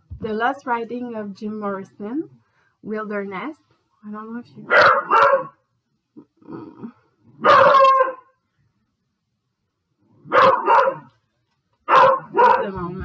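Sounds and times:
dog barking: 4.6 - 5.6, 7.4 - 8.4, 10.2 - 11.2, 11.8 - 12.8.

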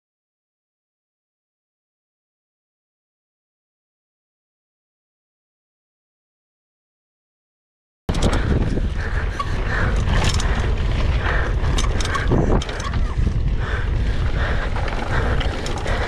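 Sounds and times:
bike clattering and rattling: 8.1 - 16.0
wind buffeting microphone: 8.1 - 16.0.

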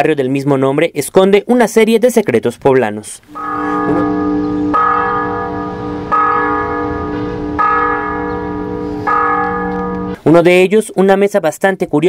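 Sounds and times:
church bell ringing: 3.3 - 10.2.

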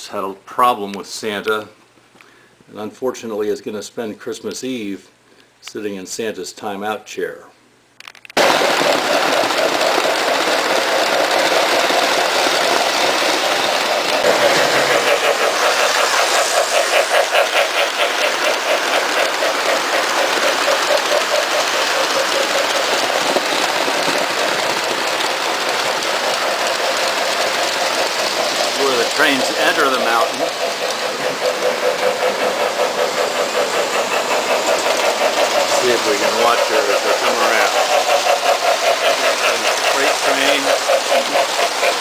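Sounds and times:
model train wheels rumbling: 8.4 - 42.0
rhythmic track clicking: 9.8 - 42.0.

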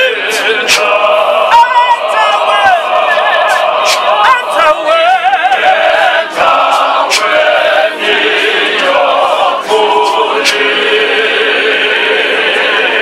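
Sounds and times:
man singing with vibrato: 0.0 - 7.5
church choir singing: 0.0 - 13.0.

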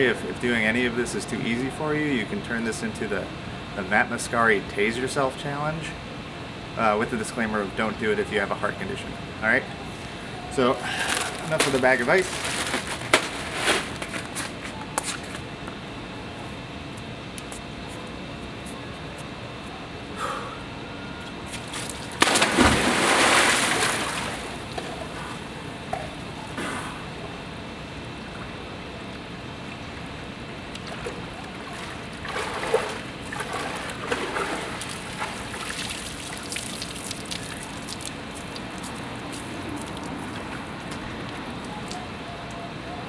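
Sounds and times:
water sloshing and lapping: 21.6 - 25.5, 30.7 - 41.0
person splashing into pool: 21.8 - 24.8, 30.9 - 38.2
swimming stroke splashes: 21.8 - 25.2, 30.8 - 38.6.

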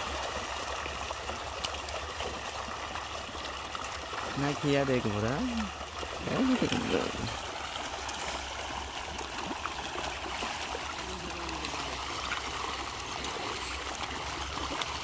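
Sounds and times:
fish splashing at water surface: 0.0 - 15.0.

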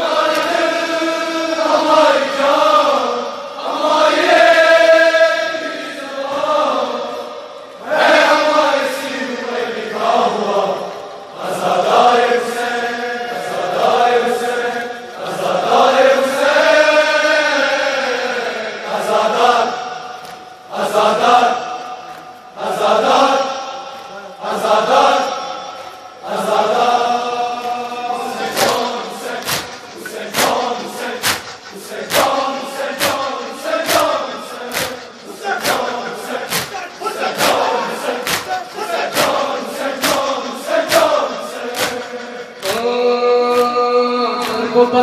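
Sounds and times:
rhythmic chest-beating slaps: 0.0 - 0.8, 18.2 - 45.0
men chanting in unison: 0.0 - 45.0.

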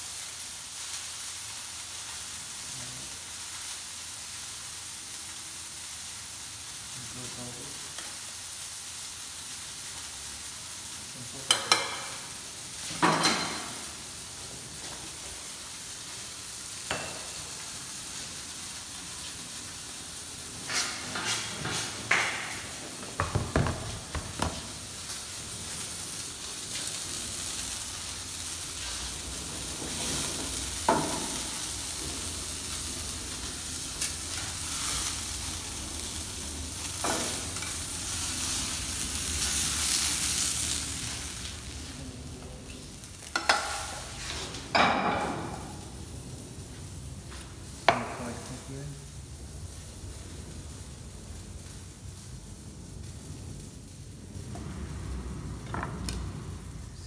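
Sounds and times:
food sizzling in hot oil: 0.0 - 57.0
metal tongs clinking on cookware: 11.4 - 12.2, 43.3 - 44.0.

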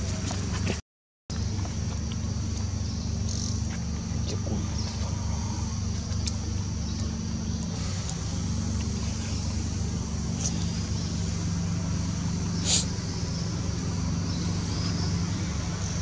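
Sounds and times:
steady low engine hum: 0.0 - 16.0.

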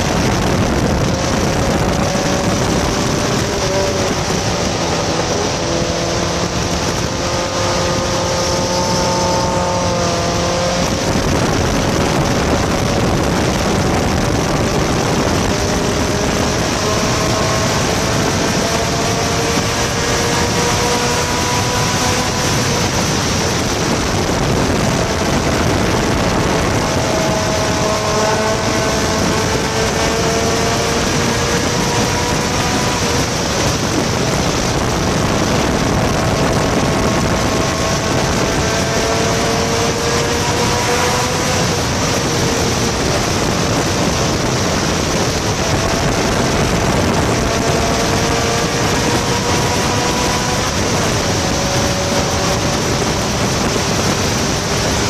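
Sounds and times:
car engine accelerating: 0.0 - 55.0
wind and road noise: 0.0 - 55.0.

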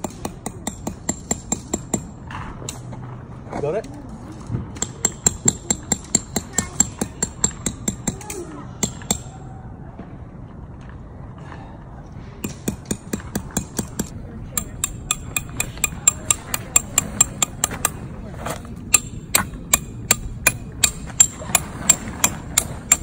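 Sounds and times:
hammer striking metal stakes: 0.0 - 2.9, 4.8 - 9.4, 12.4 - 23.0.

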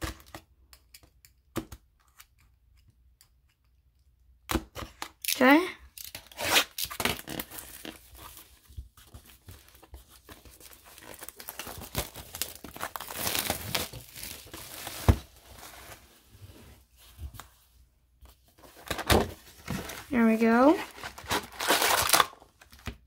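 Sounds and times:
plastic wrapping crinkling: 9.1 - 16.1, 19.6 - 22.9.

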